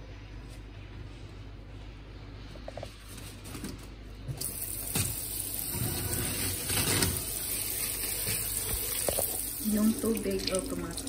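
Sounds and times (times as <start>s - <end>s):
tap water running: 4.4s - 11.0s.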